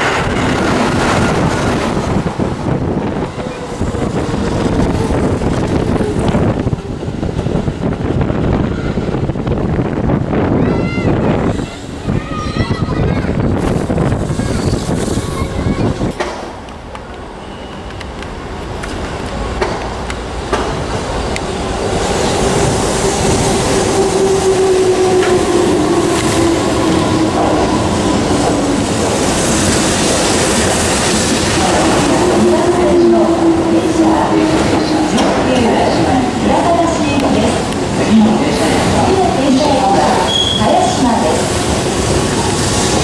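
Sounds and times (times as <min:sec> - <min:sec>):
electric train running noise: 0:21.3 - 0:43.0.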